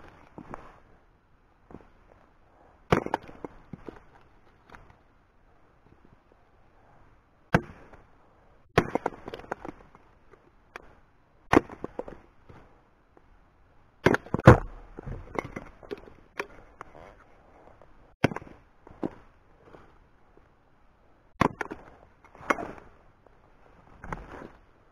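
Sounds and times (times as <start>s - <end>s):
hatchet chopping wood: 14.0s - 15.2s, 21.4s - 21.8s.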